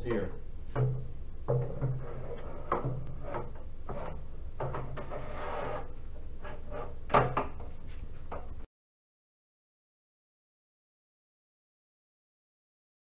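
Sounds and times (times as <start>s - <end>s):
plastic scraping on metal: 1.5s - 7.7s.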